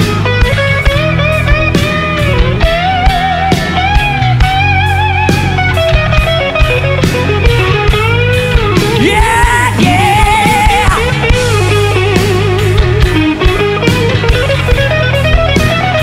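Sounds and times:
bass guitar: 0:00.0 - 0:16.0
electric guitar solo: 0:00.0 - 0:16.0
drum beat: 0:08.8 - 0:14.6.

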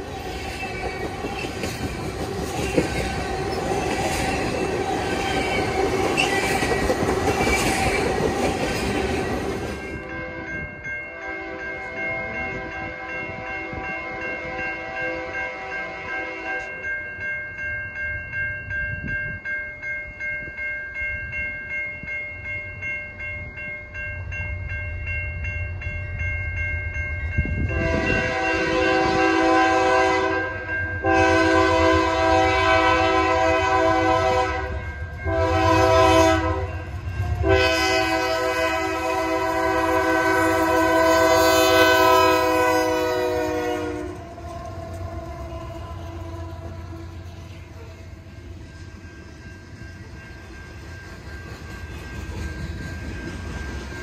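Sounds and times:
crossing bell ringing: 0:00.0 - 0:54.0
locomotive air horn: 0:11.1 - 0:11.9, 0:12.6 - 0:16.8, 0:27.7 - 0:36.8, 0:37.4 - 0:47.1
locomotive engines rumbling: 0:27.3 - 0:54.0.

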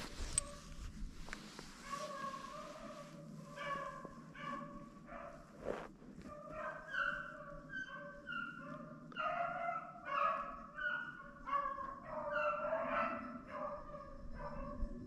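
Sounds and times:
hounds baying: 0:01.8 - 0:05.4, 0:06.3 - 0:15.0.

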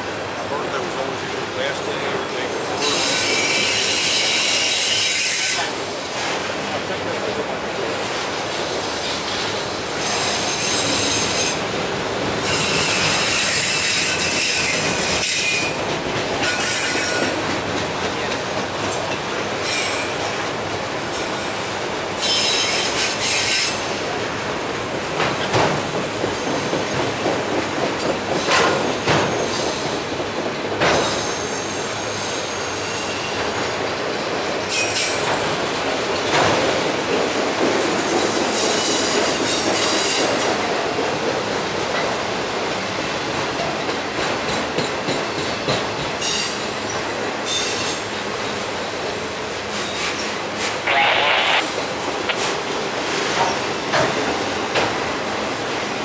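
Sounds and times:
wheels clacking over rails: 0:24.9 - 0:31.4.

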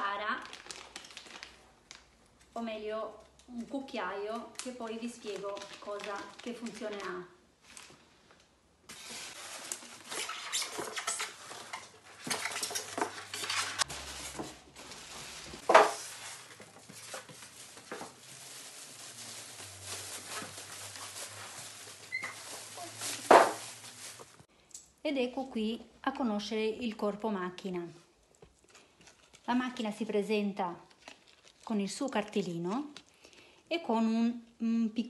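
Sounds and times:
plastic bag crinkling: 0:00.0 - 0:02.5, 0:04.4 - 0:24.5, 0:30.9 - 0:33.3.

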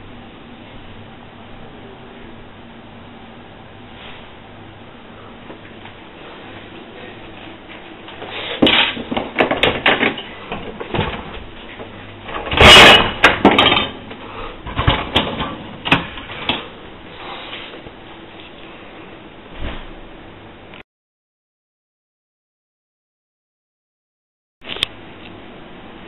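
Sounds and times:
dishwasher racks and dishes clattering: 0:08.0 - 0:16.8.

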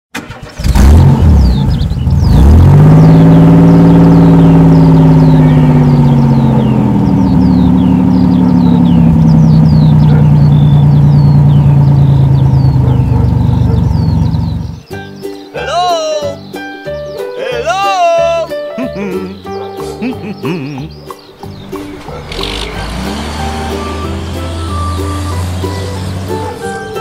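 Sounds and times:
car engine revving: 0:00.2 - 0:14.9, 0:21.4 - 0:27.0.

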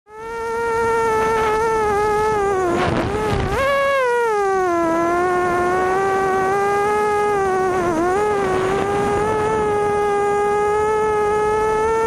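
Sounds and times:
quadcopter motors whining: 0:00.1 - 0:12.0.

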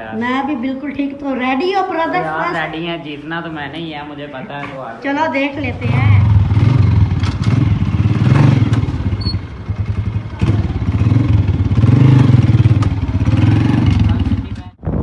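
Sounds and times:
motorcycle engine revving: 0:05.6 - 0:14.8.

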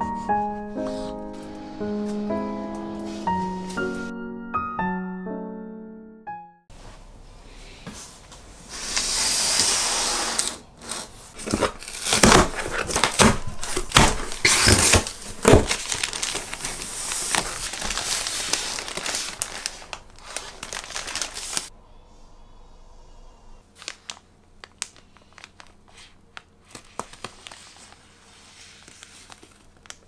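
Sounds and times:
plastic crinkling and rustling: 0:10.4 - 0:21.7, 0:23.8 - 0:30.0
sharp crackles and knocks: 0:11.4 - 0:20.0.

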